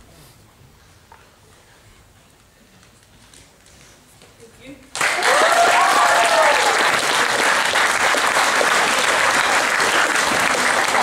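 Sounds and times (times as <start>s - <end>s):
audience applauding: 4.9s - 11.0s
cheering whoops: 5.1s - 7.1s.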